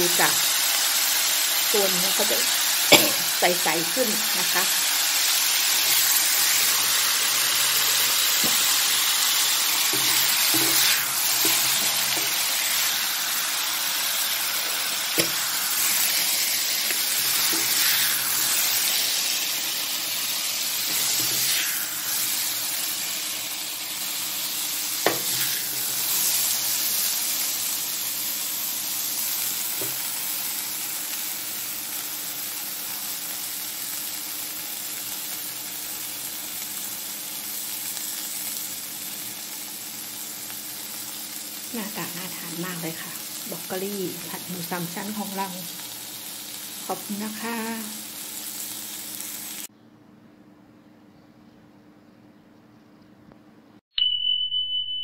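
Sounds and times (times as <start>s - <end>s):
food sizzling in a wok: 0.0s - 49.7s
spatula stirring and scraping: 9.9s - 13.0s, 20.8s - 22.4s.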